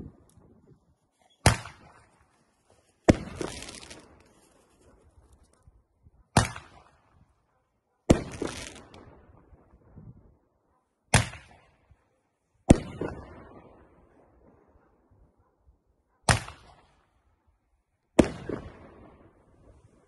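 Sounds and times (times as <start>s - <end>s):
fireworks bangs: 3.0s - 4.2s, 8.1s - 9.2s.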